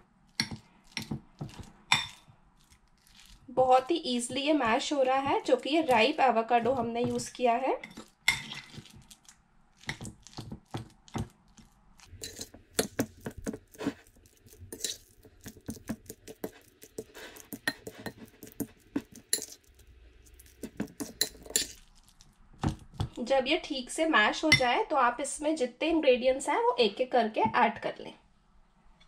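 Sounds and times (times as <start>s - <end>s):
fork clinking against glass bowl: 12.2s - 13.0s, 14.7s - 15.6s, 16.4s - 19.6s, 20.4s - 21.8s.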